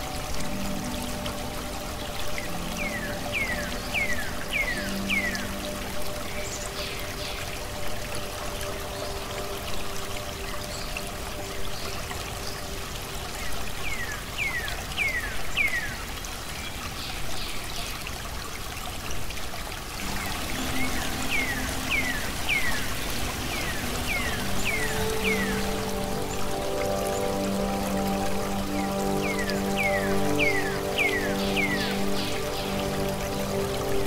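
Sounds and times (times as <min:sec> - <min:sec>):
calm music with held notes: 0:00.0 - 0:16.0, 0:20.0 - 0:34.0
trickling water: 0:00.0 - 0:34.0.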